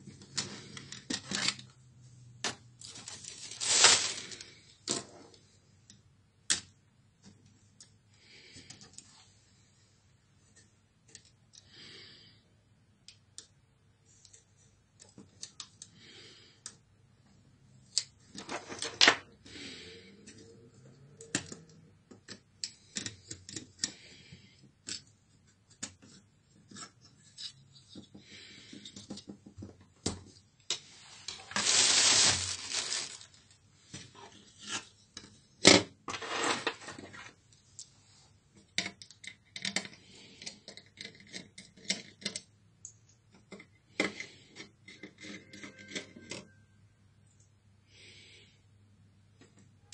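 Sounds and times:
plastic parts clicking and tapping: 11.0s - 11.7s, 14.2s - 16.0s, 21.1s - 30.8s, 38.6s - 46.5s.

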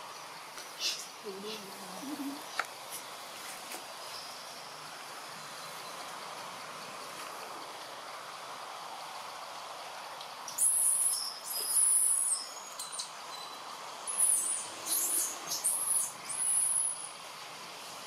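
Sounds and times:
background hiss: 0.0s - 18.0s
high-pitched whistled calls: 10.5s - 17.1s.

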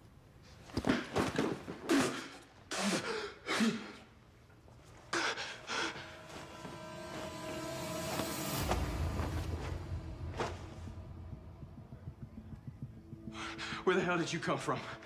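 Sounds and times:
man gasping and breathing hard: 5.1s - 6.4s.

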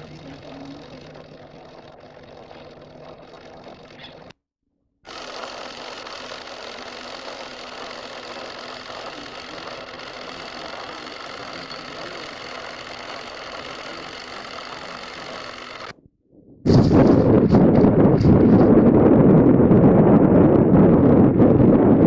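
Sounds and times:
film projector whirring: 0.0s - 4.4s, 5.1s - 16.0s.

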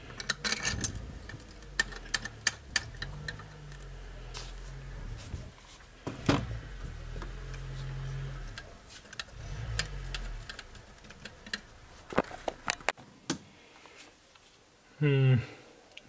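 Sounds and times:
low hum: 0.0s - 12.8s
metallic clicks of bolts and tools: 0.1s - 3.9s.

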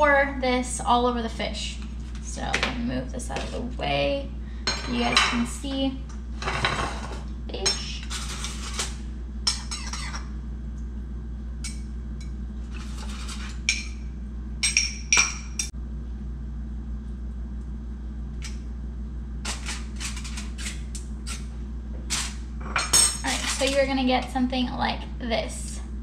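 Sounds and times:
steady low hum: 0.0s - 26.0s
metal spoon scraping a bowl: 12.7s - 13.9s.

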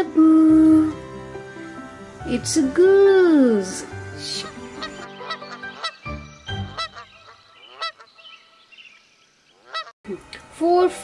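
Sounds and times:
goose honking: 4.2s - 8.7s, 9.5s - 9.9s.

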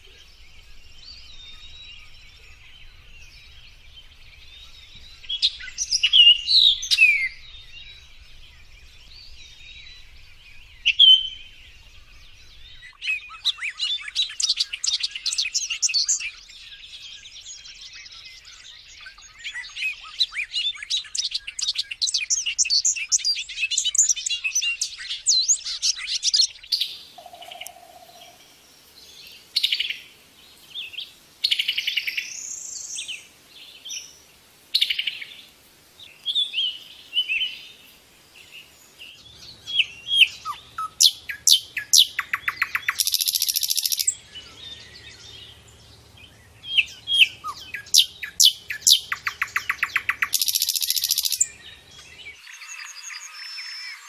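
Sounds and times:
nightingale whistling and trilling: 0.0s - 28.4s, 39.0s - 45.6s, 46.2s - 54.0s
bubbling tinkling birdsong: 38.4s - 45.6s, 46.7s - 54.0s.

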